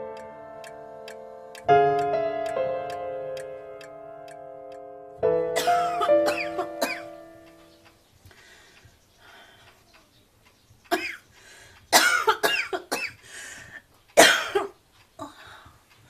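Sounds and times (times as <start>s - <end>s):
woman coughing: 5.6s - 7.1s, 10.9s - 11.2s, 12.0s - 13.2s, 14.2s - 14.8s.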